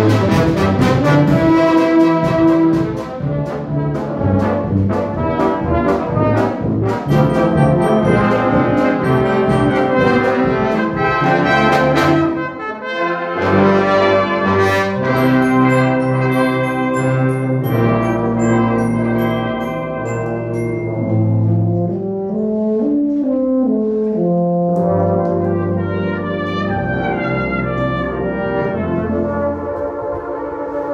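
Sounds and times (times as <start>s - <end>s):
brass band playing: 0.0s - 30.9s.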